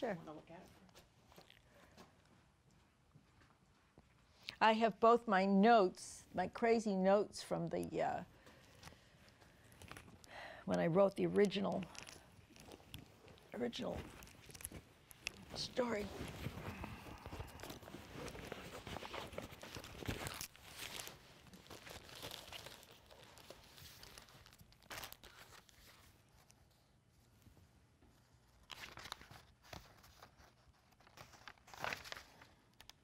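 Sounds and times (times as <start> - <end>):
paper crinkle: 11.3 - 26.8, 28.2 - 33.0
paper and bag rustling: 11.8 - 26.2.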